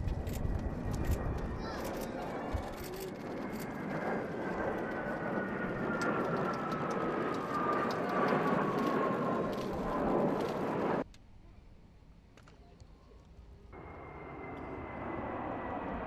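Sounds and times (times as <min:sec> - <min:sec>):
jet aircraft roar and whine: 0:00.0 - 0:16.0.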